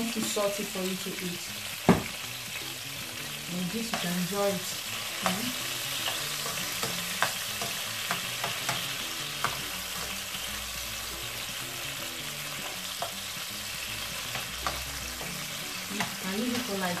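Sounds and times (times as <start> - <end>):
pepper sizzling in oil: 0.0 - 17.0
metal spatula clicking on pan: 6.0 - 9.7.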